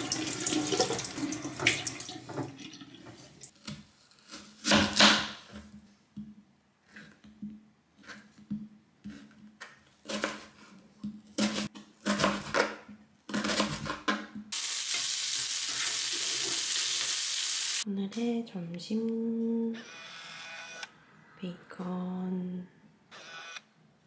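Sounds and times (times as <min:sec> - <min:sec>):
knife slicing onion on board: 0:10.0 - 0:14.1
bacon sizzling in a frying pan: 0:14.5 - 0:17.8.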